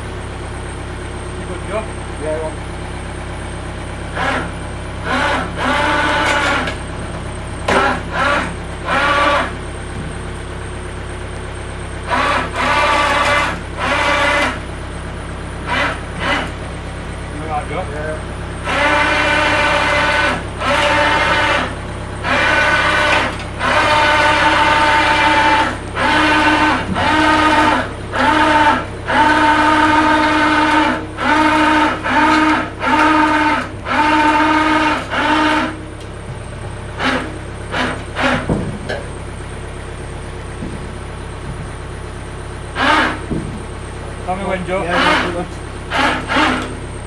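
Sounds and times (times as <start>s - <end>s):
electric hoist motor whining: 1.1s - 47.0s.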